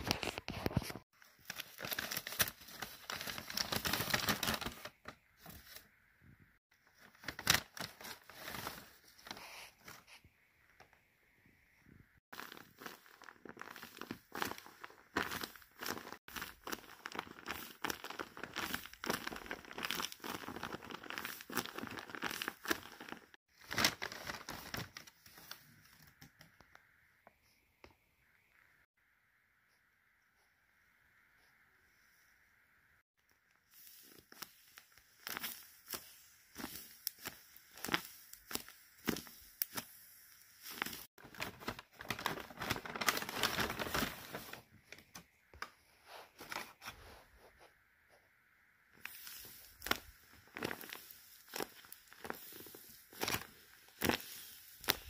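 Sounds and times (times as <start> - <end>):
tape-wrapped paper crinkling: 0.0 - 5.8, 6.9 - 10.0, 12.3 - 26.1, 33.7 - 45.0, 49.0 - 55.0.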